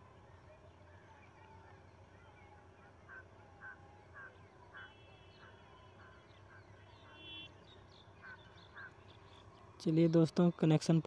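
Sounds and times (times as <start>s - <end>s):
faint short bird calls: 2.4s - 9.5s.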